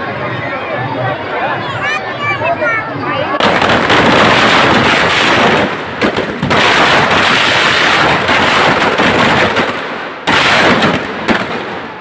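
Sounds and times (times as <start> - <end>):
firecrackers banging and crackling: 0.0 - 12.0.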